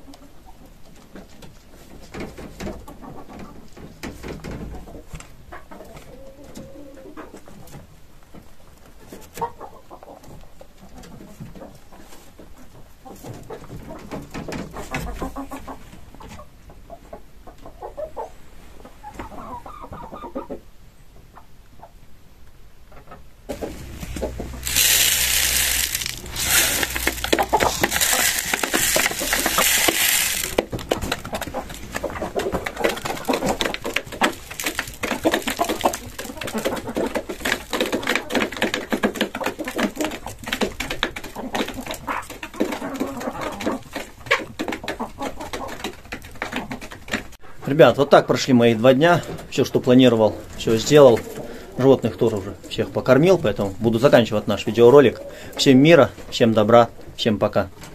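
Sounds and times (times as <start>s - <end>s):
chickens clucking: 0.0s - 22.1s, 22.9s - 57.1s
dry feed pouring hiss: 23.6s - 30.7s, 34.2s - 36.2s.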